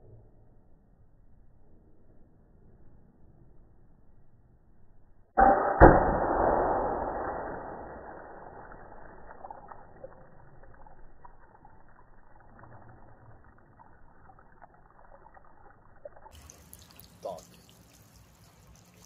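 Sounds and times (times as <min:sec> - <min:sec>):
muffled water spilling and dripping: 0:05.4 - 0:19.0.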